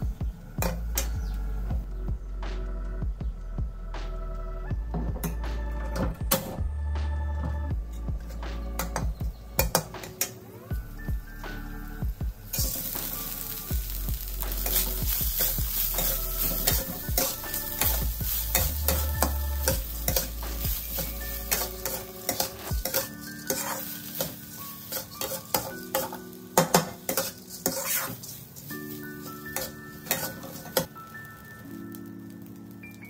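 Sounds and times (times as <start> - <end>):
rice sizzling in oil: 8.3 - 33.0
metal spatula scraping wok: 12.5 - 30.9.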